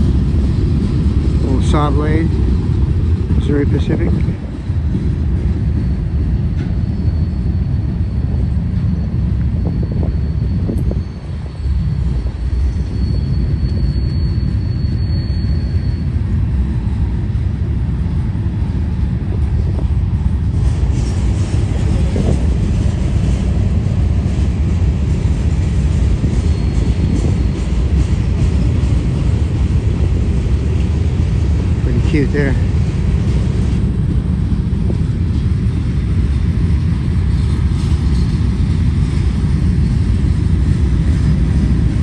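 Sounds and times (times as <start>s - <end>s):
freight cars rumbling on rails: 0.0s - 42.0s
faint high whine: 5.9s - 17.3s.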